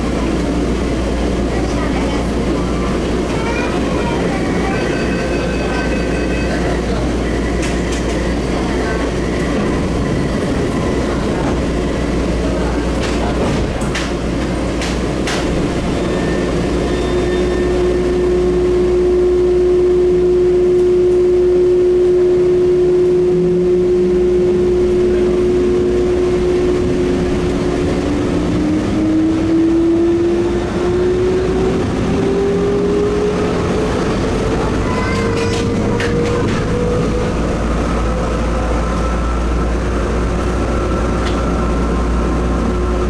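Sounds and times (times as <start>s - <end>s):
train electric hum: 0.0s - 43.0s
train whine rising in pitch: 16.0s - 43.0s.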